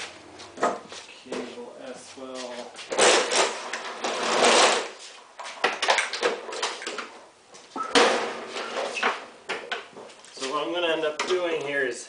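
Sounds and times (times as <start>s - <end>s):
lawnmower scraping on concrete: 2.9s - 5.1s.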